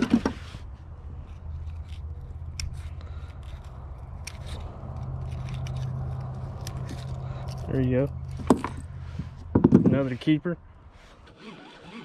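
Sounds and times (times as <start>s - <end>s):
metal hooks clicking and scraping: 1.2s - 8.9s.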